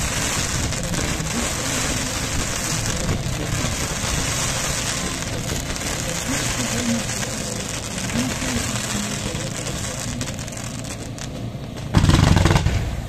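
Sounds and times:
spark fountains hissing: 0.0s - 11.8s
loud blast: 0.0s - 13.0s.

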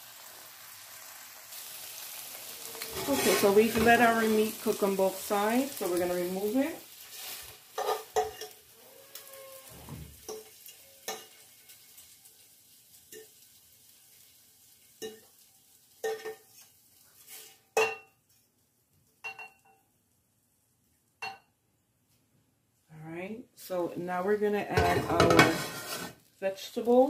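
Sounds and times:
steak sizzling in a frying pan: 0.0s - 17.7s.

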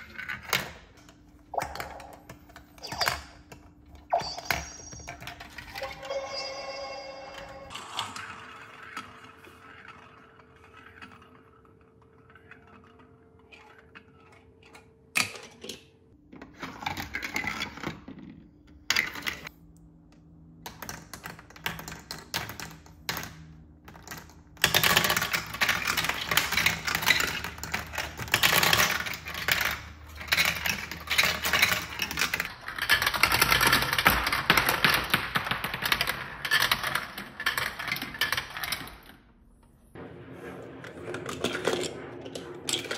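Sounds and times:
marbles clattering down plastic tracks: 20.7s - 39.1s.

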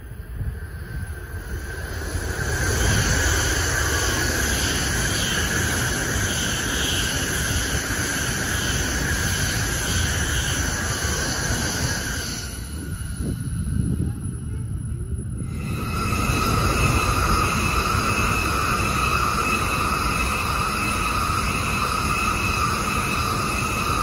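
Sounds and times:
high-speed train passing: 0.0s - 24.0s.

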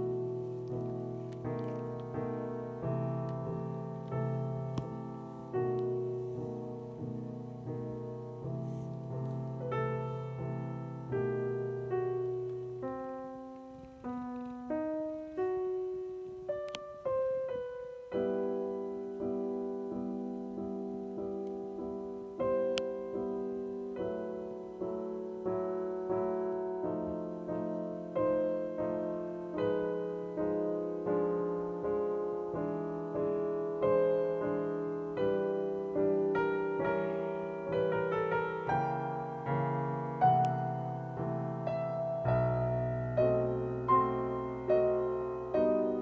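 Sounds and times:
slow solo piano music: 0.0s - 46.0s.

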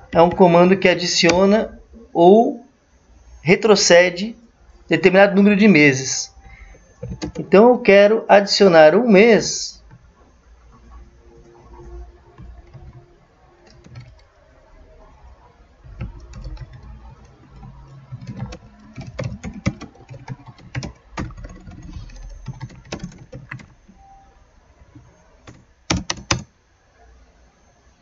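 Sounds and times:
typing on computer keyboard: 7.0s - 7.5s, 12.4s - 13.0s, 13.6s - 14.3s, 15.8s - 23.8s, 25.0s - 26.5s.

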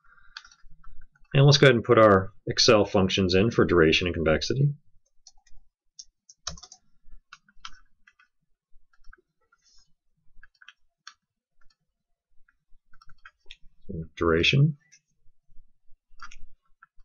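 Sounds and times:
mouse and keyboard clicking: 5.3s - 8.3s.

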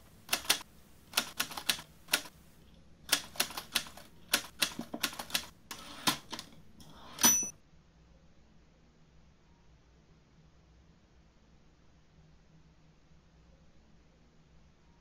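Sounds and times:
typewriter keystrokes: 0.3s - 2.3s, 3.1s - 6.6s
typewriter carriage bell: 7.0s - 7.6s.

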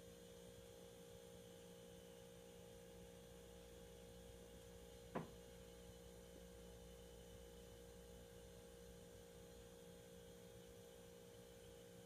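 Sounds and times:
faint electrical hum: 0.0s - 12.0s
short knock: 5.1s - 5.4s.

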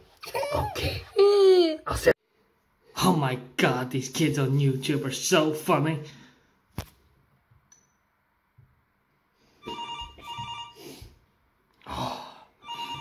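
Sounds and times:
electronic telephone ring: 9.6s - 10.8s, 12.6s - 13.0s.

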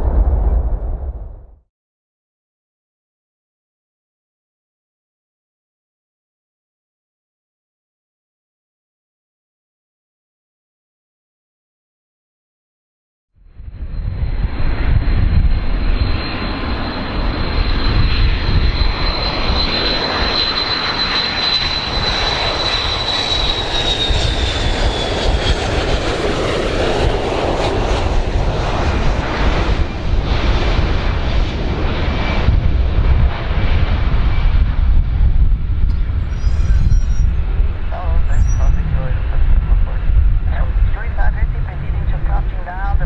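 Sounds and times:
jet engine whine: 0.0s - 1.6s, 13.4s - 43.0s
rushing jet noise: 13.7s - 43.0s.

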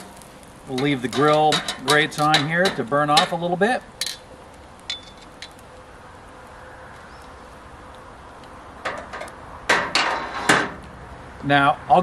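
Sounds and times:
grilling tongs clacking: 0.0s - 5.6s, 8.8s - 10.9s
charcoal fire hissing: 0.0s - 12.0s.

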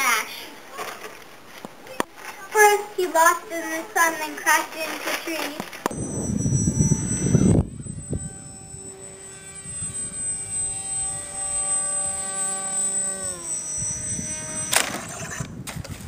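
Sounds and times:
electric motor and propeller whining: 5.8s - 16.0s.

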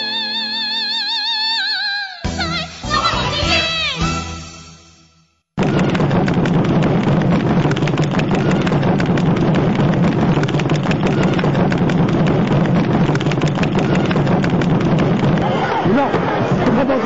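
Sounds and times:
firecrackers crackling: 5.6s - 15.6s.

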